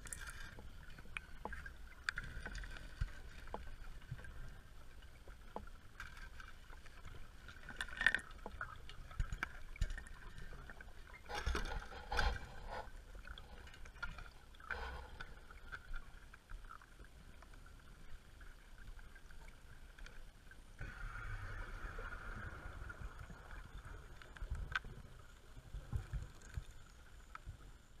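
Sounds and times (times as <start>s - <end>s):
diver's regulator breathing: 11.3s - 14.0s, 14.6s - 15.6s.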